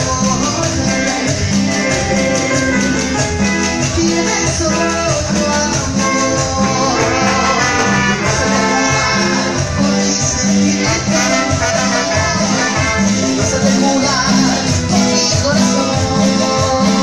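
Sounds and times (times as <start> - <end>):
keyboard: 0.0 - 17.0
percussion: 0.0 - 17.0
trumpet: 6.0 - 14.2.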